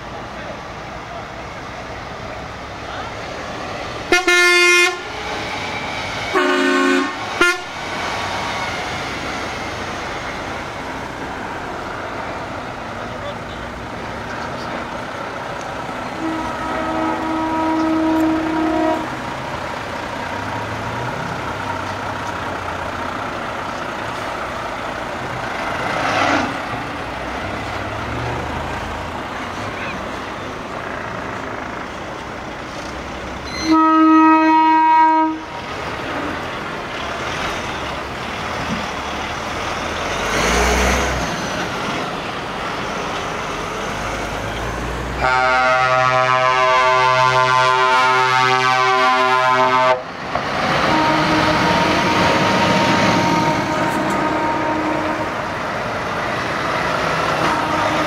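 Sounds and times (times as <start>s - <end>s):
heavy trucks driving past: 0.0s - 58.0s
deep multi-tone horn: 4.1s - 5.1s, 6.3s - 7.8s, 16.1s - 19.3s, 33.6s - 35.5s, 45.2s - 50.1s, 50.7s - 55.6s, 57.0s - 58.0s
truck horn blast: 4.1s - 5.1s, 6.3s - 7.8s, 16.1s - 19.3s, 33.5s - 35.6s, 45.2s - 50.1s, 50.7s - 55.6s, 57.0s - 58.0s.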